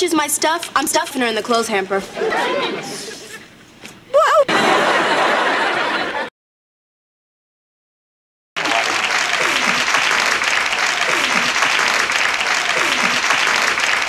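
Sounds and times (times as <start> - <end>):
studio audience applauding: 8.6 - 14.0.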